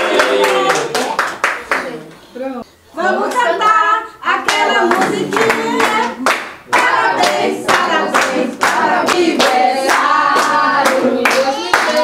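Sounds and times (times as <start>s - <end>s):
people clapping: 0.0s - 2.1s, 4.4s - 12.0s
group singing: 2.9s - 12.0s.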